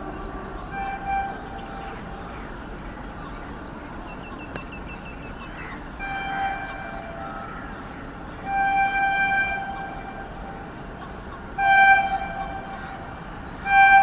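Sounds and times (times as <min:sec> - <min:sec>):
train horn blasts: 0:00.0 - 0:02.3, 0:06.0 - 0:07.7, 0:08.4 - 0:14.0
bird chirping: 0:00.0 - 0:14.0
train low rumble: 0:00.0 - 0:14.0.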